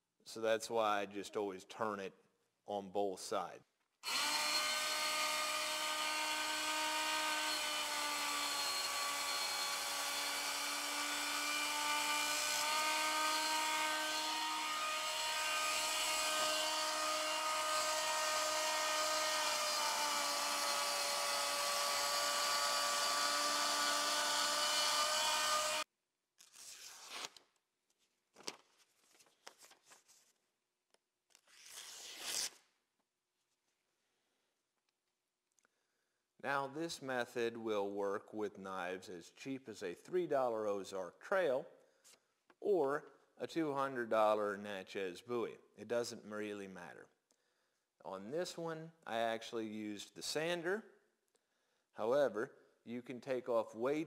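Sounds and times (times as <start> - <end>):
belt sharpener motor whine: 4.0 - 25.8
knife slicing paper: 31.4 - 32.6.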